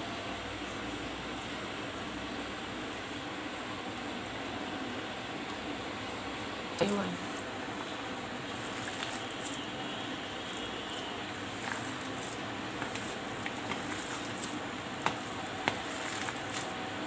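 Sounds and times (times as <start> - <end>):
hands squishing soft mixture: 6.8 - 17.0.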